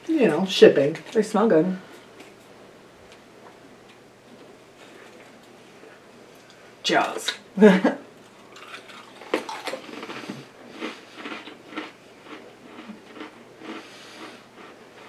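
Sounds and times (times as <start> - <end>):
people crunching potato chips: 8.3 - 15.0.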